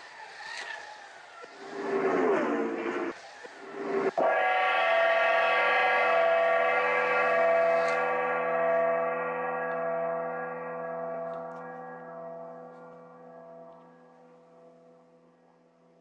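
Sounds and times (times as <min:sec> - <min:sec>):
gong ringing: 0:04.2 - 0:16.0.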